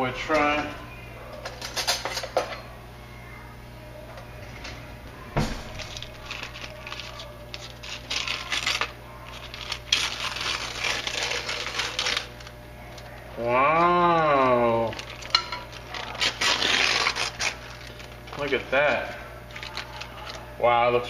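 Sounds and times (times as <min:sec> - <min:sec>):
parchment paper crackling and tearing: 0:05.6 - 0:20.5.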